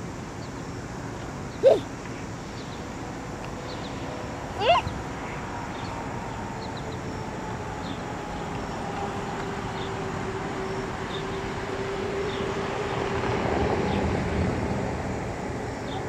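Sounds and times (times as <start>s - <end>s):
faint high chirps: 1.5s - 1.9s.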